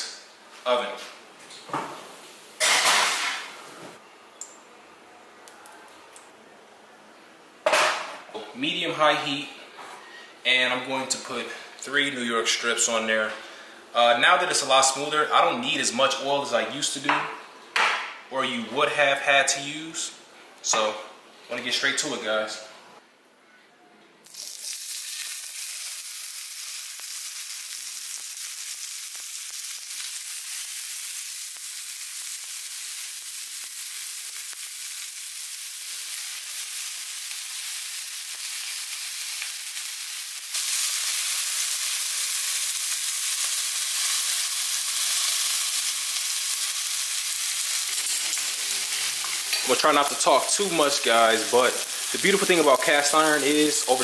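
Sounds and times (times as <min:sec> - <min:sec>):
steaks sizzling in a skillet: 0:24.3 - 0:54.0.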